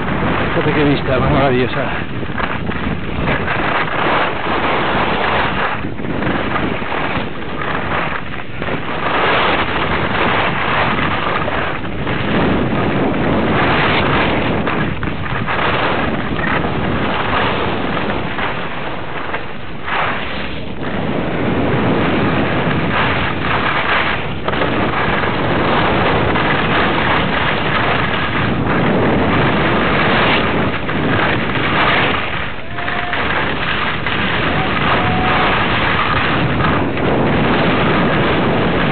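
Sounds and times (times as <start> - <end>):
wind rushing over microphone: 0.0 - 38.9
skis hissing over snow: 15.6 - 38.8.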